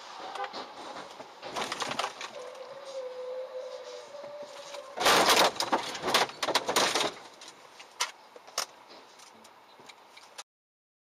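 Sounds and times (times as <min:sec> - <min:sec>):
scraping and rattling: 0:00.0 - 0:03.0, 0:04.5 - 0:09.4
vehicle collision crunch: 0:00.2 - 0:02.6, 0:04.6 - 0:09.4.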